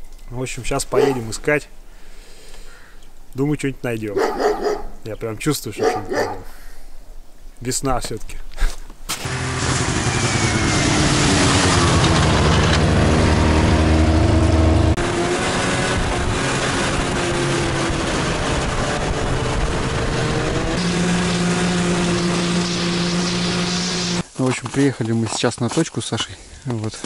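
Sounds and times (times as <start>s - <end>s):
heavy rushing noise: 9.2s - 24.2s
snowmobile engine running: 9.2s - 24.2s.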